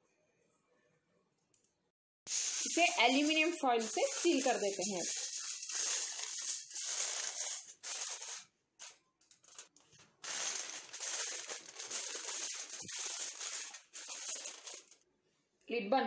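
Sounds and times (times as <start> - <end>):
aluminium foil crinkling: 2.3 - 15.0.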